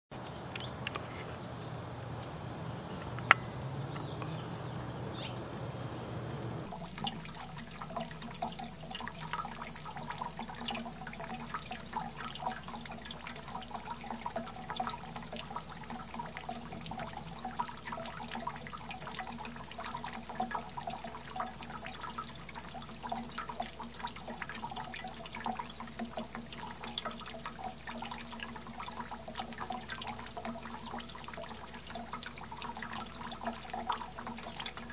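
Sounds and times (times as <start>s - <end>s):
steady low hum: 1.6s - 12.7s
fountain water pattering and dripping: 6.6s - 34.9s.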